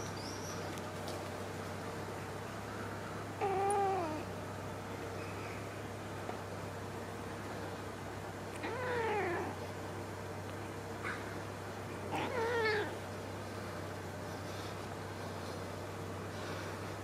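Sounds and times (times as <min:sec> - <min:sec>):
kitten meowing: 0:12.1 - 0:13.0.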